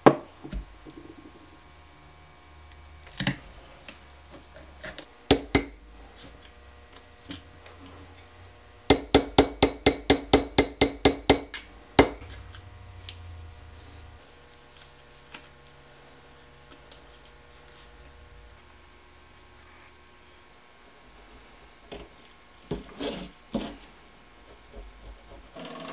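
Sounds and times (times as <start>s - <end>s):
hammer tapping on anvil: 5.3s - 5.9s, 8.9s - 12.4s.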